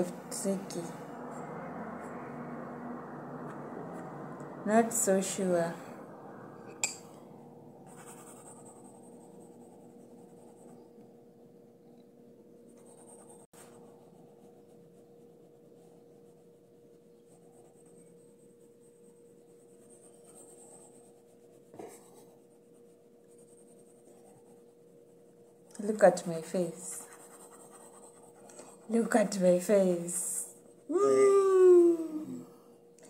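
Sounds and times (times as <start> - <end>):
steady low hum: 0.0 - 31.1
pencil scratching on paper: 7.8 - 11.0, 12.7 - 30.9.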